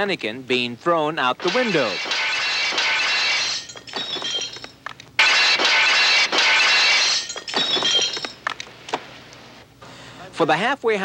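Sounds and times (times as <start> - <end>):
window glass shattering: 1.4 - 8.4
glass shards tinkling: 1.6 - 4.7, 5.8 - 8.4.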